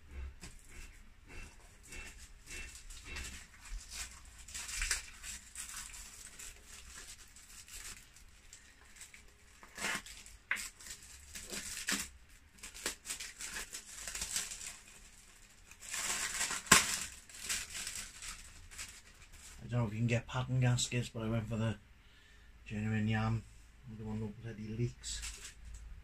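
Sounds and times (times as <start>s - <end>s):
hands rustling motorcycle parts: 0.0s - 14.8s.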